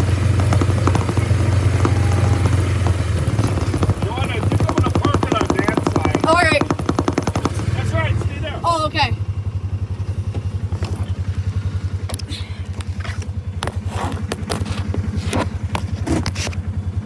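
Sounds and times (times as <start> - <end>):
truck engine idling: 0.0 - 17.0
clicks and scrapes: 12.9 - 16.6.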